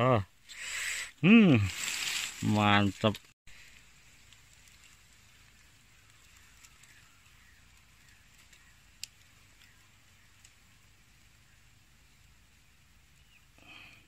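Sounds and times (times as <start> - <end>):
steady high hiss: 0.0 - 13.6
faint ticks: 3.7 - 10.6.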